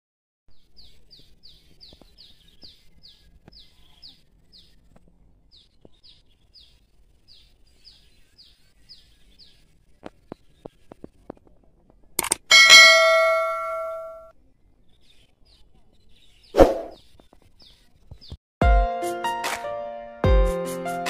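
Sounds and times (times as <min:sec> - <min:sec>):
sharp clicks: 0:12.2 - 0:12.5.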